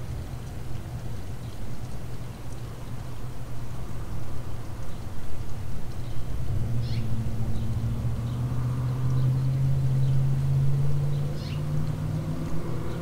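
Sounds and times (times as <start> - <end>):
engine humming: 6.0 - 13.0.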